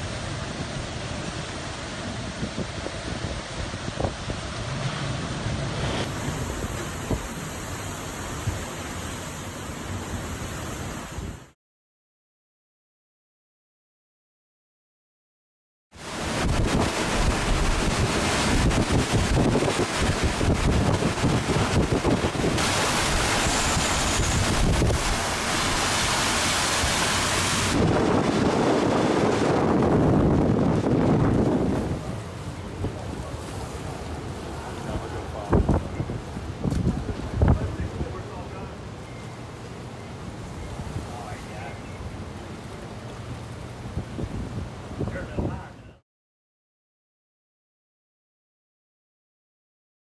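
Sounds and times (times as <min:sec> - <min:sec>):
strong wind and heavy rain: 0:00.0 - 0:11.6, 0:16.0 - 0:46.0.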